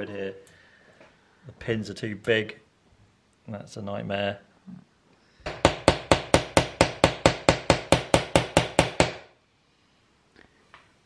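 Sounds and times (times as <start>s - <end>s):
small hammer tapping: 5.5s - 9.2s.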